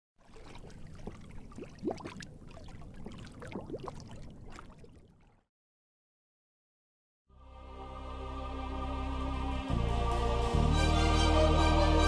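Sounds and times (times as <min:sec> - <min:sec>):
water sloshing and gurgling: 0:00.2 - 0:05.5.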